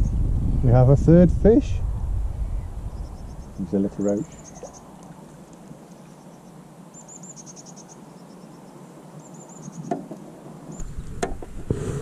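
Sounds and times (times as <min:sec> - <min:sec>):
wind rumble: 0:00.0 - 0:05.5, 0:10.4 - 0:12.0
small bird chirping: 0:02.3 - 0:10.1.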